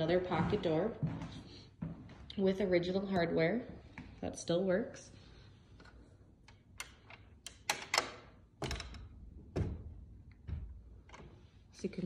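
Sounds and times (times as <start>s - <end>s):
door hardware clicks and knocks: 6.7s - 11.2s.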